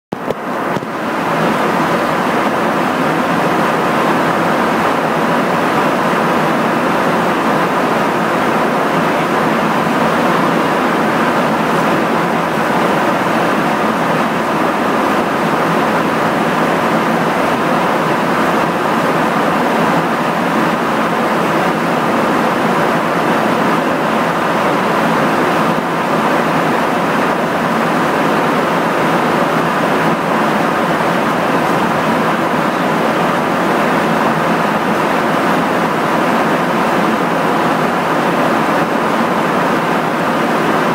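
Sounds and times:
airplane cabin roar: 0.1 - 40.9.

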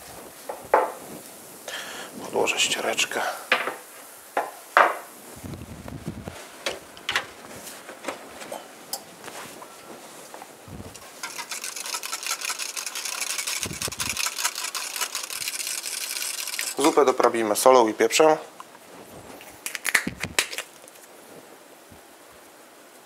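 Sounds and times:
whisk clattering against saucepan: 11.2 - 17.1.

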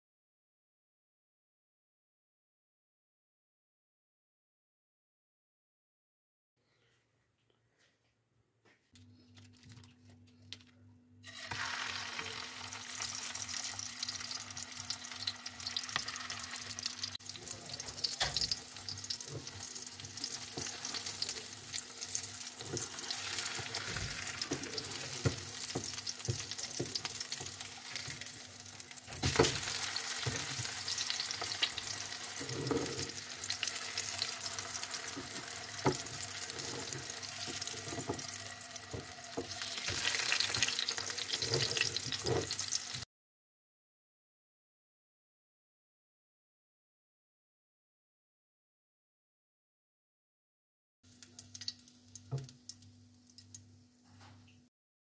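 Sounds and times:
patties sizzling in oil: 11.2 - 43.1, 51.1 - 53.8.

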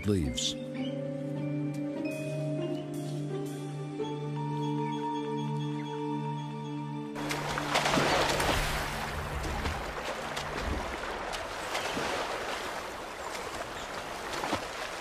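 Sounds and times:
rushing river water: 7.2 - 15.0
small splashes: 7.2 - 15.0.

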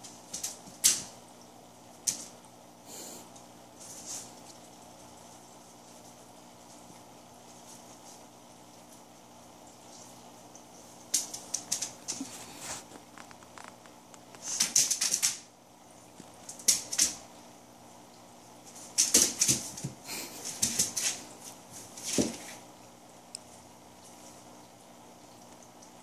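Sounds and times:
plastic bag crinkling: 11.5 - 14.6.

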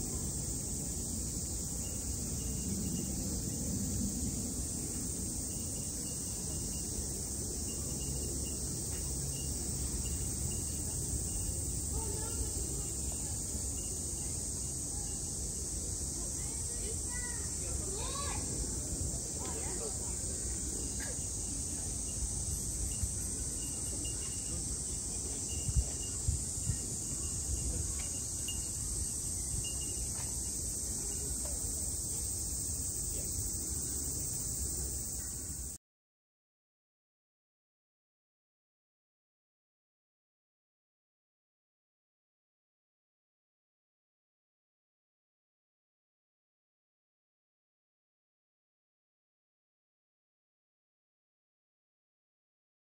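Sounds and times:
faint indistinct voices: 0.0 - 35.8
insects buzzing: 0.0 - 35.8
steady high hiss: 0.0 - 35.8.

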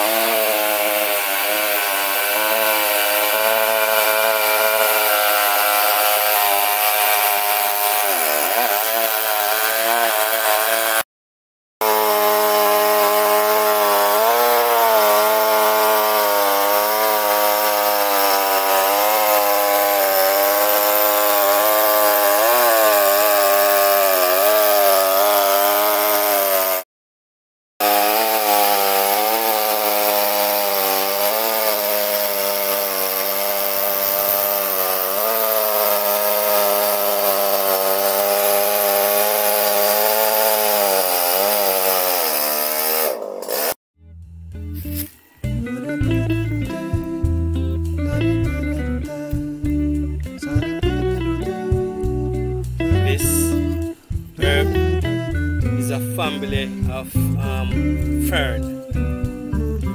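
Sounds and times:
chainsaw cutting log: 0.0 - 11.1, 11.8 - 26.9, 27.8 - 43.8, 44.7 - 45.2, 53.0 - 55.0, 55.6 - 59.9.

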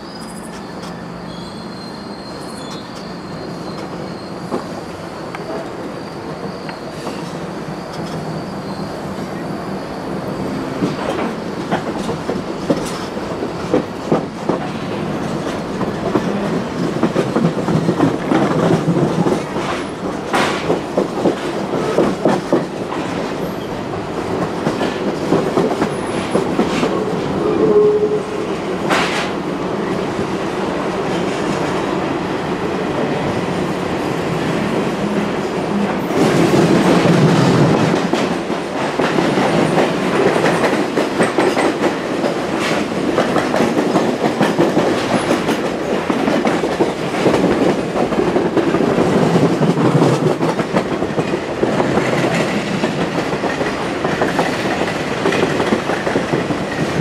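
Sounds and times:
train wheels clicking over rail joints: 10.8 - 27.1, 28.8 - 29.4, 35.8 - 57.0.

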